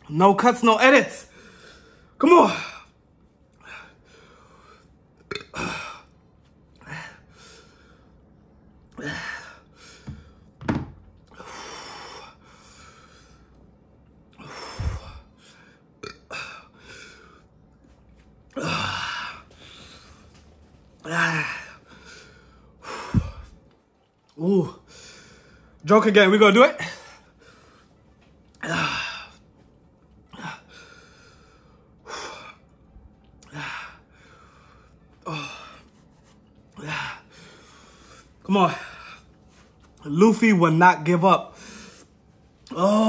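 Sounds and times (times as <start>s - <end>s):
man gasping and groaning: 6.8s - 7.4s, 9.0s - 10.2s, 14.4s - 15.4s, 18.5s - 20.1s, 21.0s - 23.6s, 28.6s - 29.4s.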